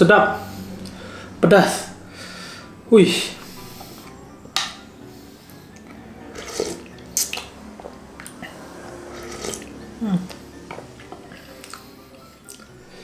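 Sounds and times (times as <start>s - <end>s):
slurping broth: 6.3s - 7.5s, 8.2s - 9.8s.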